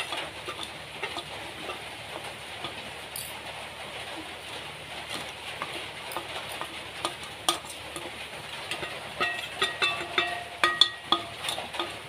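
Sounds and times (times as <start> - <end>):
spoon scraping metal plate: 0.0 - 1.8, 8.7 - 12.0
ringing metal plate: 8.7 - 12.0.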